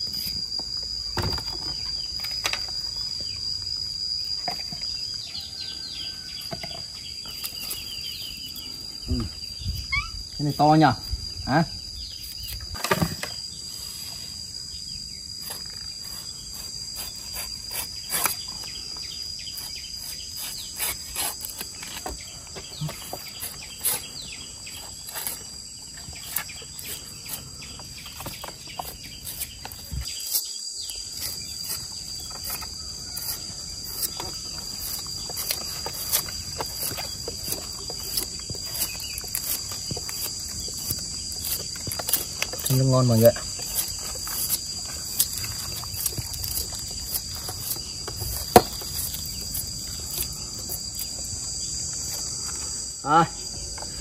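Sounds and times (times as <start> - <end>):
insects droning: 0.0 - 54.0
knife cutting bamboo husks: 6.1 - 8.6, 15.4 - 52.7.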